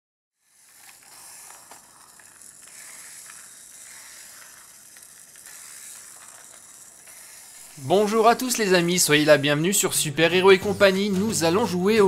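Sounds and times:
toy car motor hiss: 0.4s - 9.4s.

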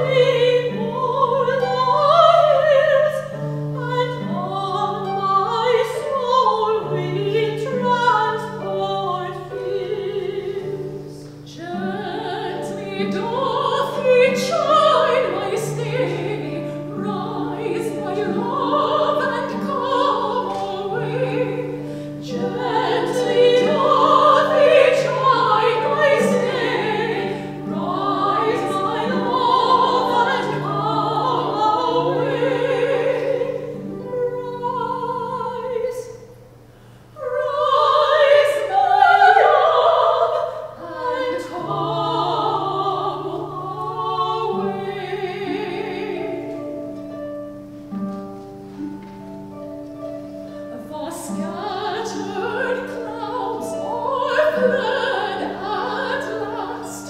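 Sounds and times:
choir singing: 0.0s - 36.2s, 37.2s - 47.1s, 48.7s - 57.0s.

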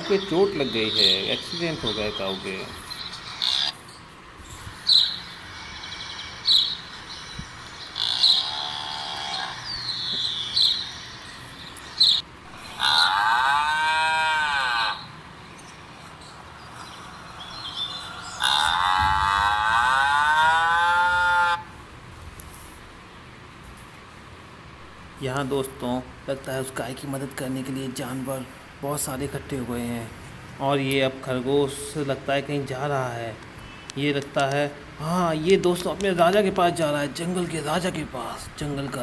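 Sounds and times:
cow mooing: 12.6s - 15.1s, 18.3s - 21.7s.

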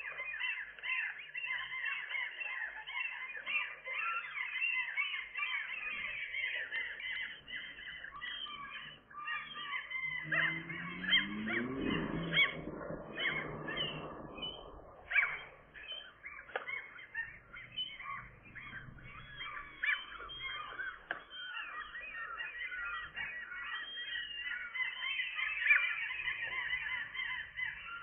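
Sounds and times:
gull chicks peeping: 0.0s - 28.0s
low rising sound: 10.1s - 16.2s.

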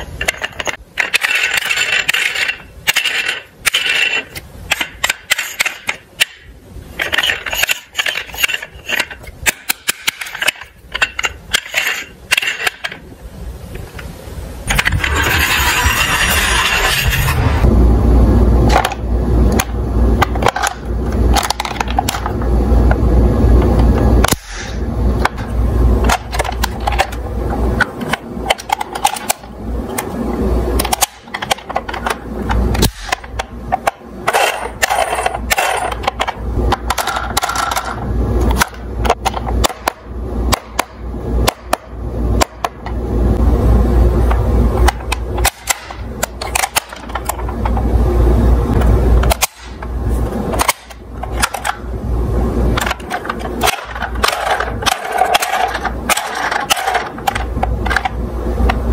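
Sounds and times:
plastic toy cars clattering: 0.0s - 6.4s, 30.8s - 40.0s, 52.8s - 58.2s.

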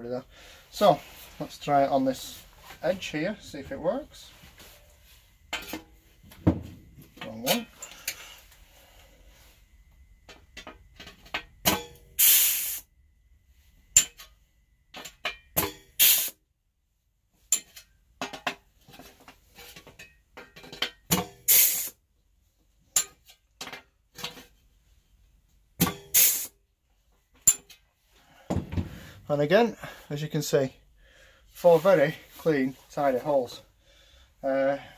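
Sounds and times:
short hiss of air: 12.2s - 12.9s, 16.0s - 16.4s, 21.5s - 22.0s, 26.1s - 26.6s.

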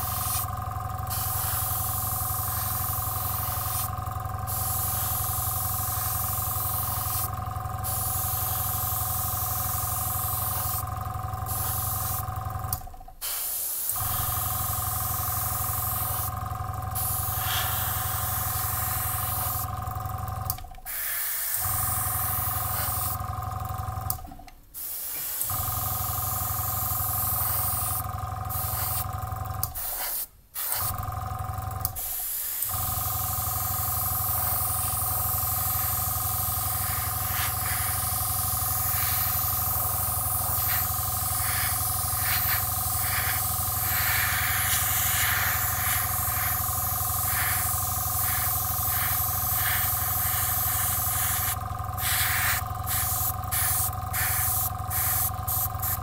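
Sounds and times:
airbrush hissing: 0.0s - 0.5s, 1.1s - 10.8s, 11.5s - 12.2s, 13.2s - 16.3s, 17.0s - 19.7s, 20.9s - 23.2s, 24.8s - 29.0s, 29.8s - 30.9s, 32.0s - 56.0s
compressor humming: 0.0s - 13.3s, 13.9s - 21.0s, 32.7s - 56.0s.

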